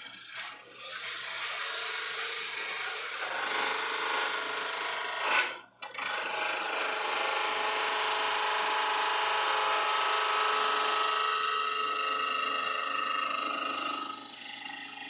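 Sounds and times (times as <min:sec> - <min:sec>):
drill press whining: 0:05.8 - 0:15.0.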